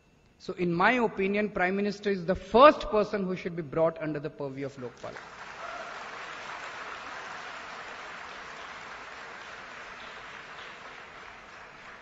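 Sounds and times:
audience applauding: 5.2s - 12.0s.

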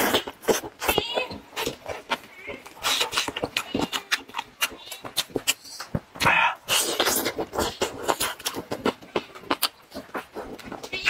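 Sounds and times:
wet chewing and smacking: 0.0s - 11.0s
wet slurp: 2.7s - 9.7s.

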